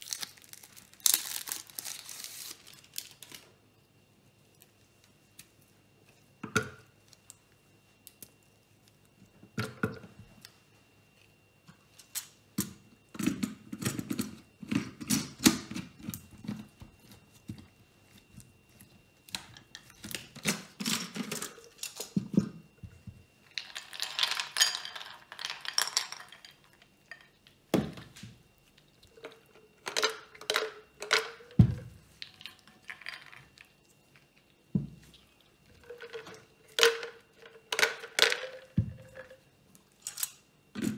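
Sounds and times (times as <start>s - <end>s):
chocolate pieces clinking into glass: 23.6s - 27.4s.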